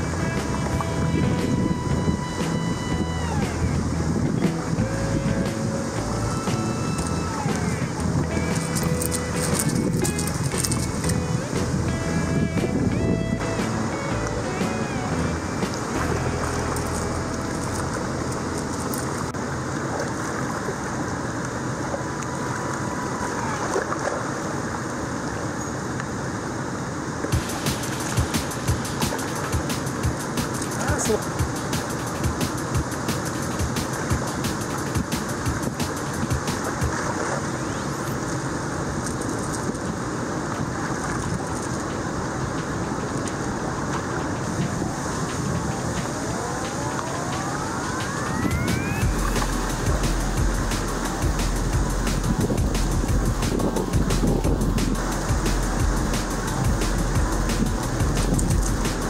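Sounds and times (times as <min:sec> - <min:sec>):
water rushing from spillway: 0:00.0 - 0:59.0.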